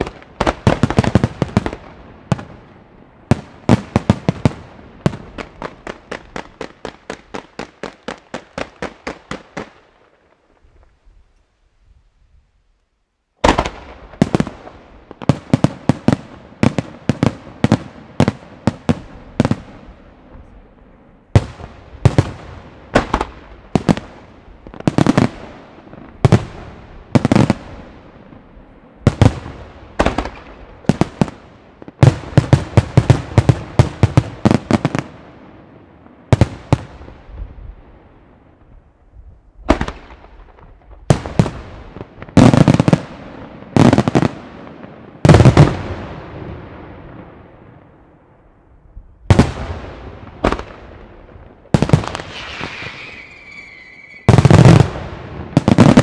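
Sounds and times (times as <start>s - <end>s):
fireworks bursting with sharp bangs: 0.0s - 11.1s, 13.4s - 38.9s, 39.5s - 48.0s, 49.2s - 56.0s.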